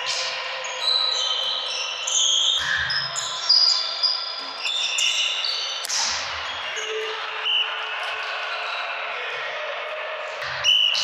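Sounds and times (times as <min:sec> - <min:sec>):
sneakers squeaking on floor: 0:00.1 - 0:07.6.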